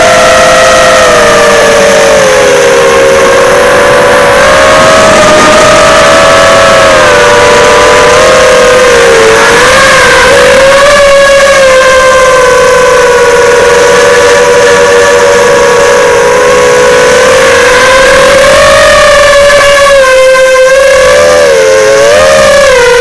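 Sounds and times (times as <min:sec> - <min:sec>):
drone motors whining: 0:00.0 - 0:23.0.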